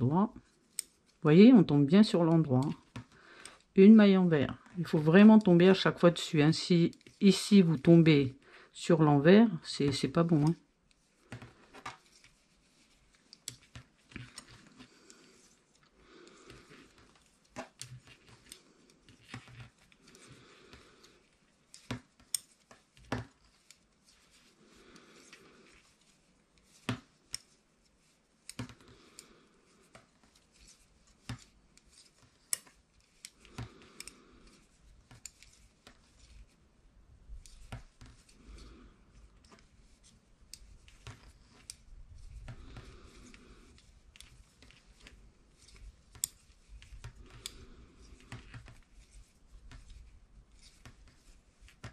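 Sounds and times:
knitting needles clicking: 0.0 - 8.1, 9.6 - 36.6, 37.2 - 51.9
soft rubbing: 9.8 - 51.9.

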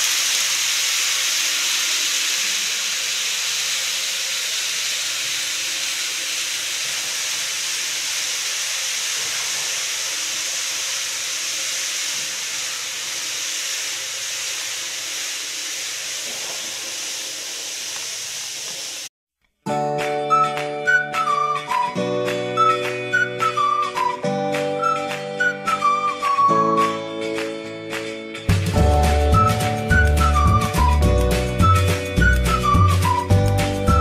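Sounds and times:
model train whirring: 0.0 - 19.1
music: 19.6 - 34.0.

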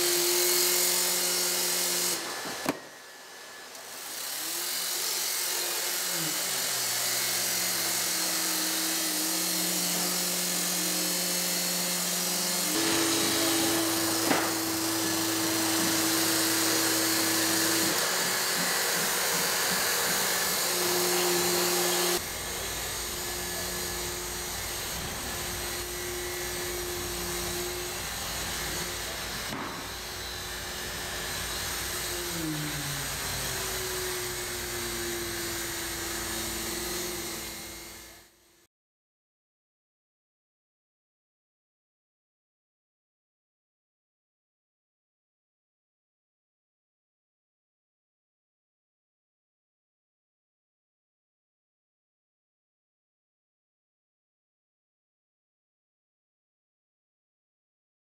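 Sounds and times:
hydraulic pump whining: 0.0 - 38.2.

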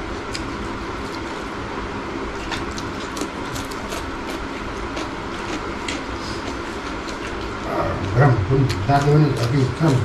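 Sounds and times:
steady rumbling background noise: 0.0 - 10.0
crisp chewing clicks: 0.3 - 1.2, 2.4 - 6.1, 6.9 - 10.0
fingers working food on a plate: 2.3 - 10.0.

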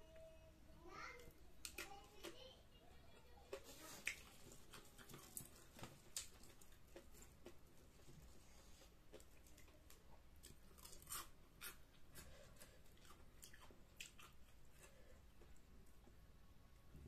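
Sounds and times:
chewing and crunching: 3.4 - 15.7.

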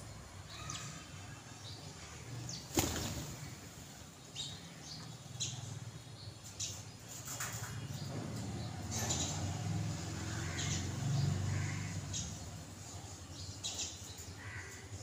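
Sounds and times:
burst of wing flaps: 2.7 - 3.5
sparrow chirps: 4.2 - 9.6, 10.4 - 14.6.

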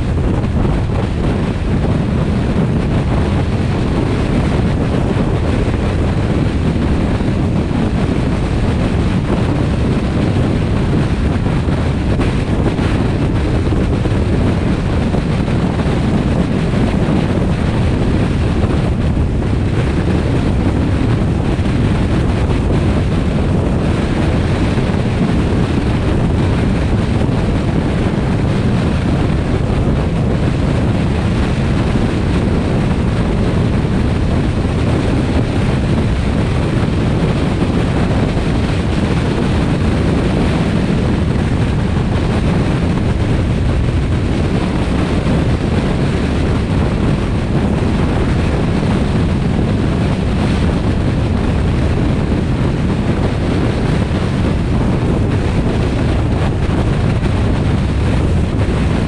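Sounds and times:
moving car road and engine noise: 0.0 - 59.0
wind noise on microphone: 0.0 - 59.0.

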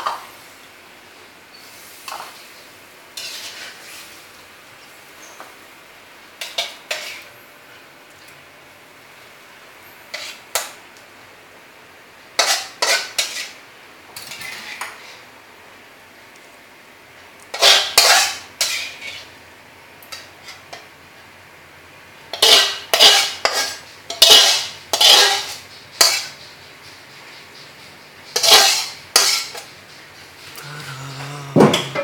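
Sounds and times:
dishes and utensils clattering: 22.3 - 26.4, 28.3 - 29.7, 30.5 - 32.0.

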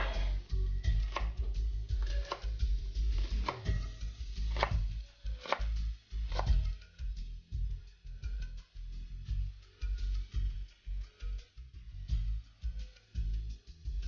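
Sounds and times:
knife chopping on cutting board: 0.0 - 3.8, 4.4 - 6.7
soft background music: 0.0 - 14.0.

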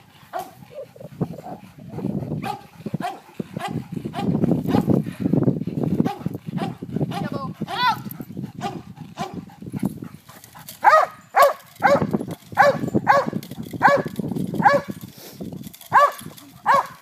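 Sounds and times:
dog barking: 2.4 - 4.8, 10.8 - 14.9, 15.9 - 17.0.

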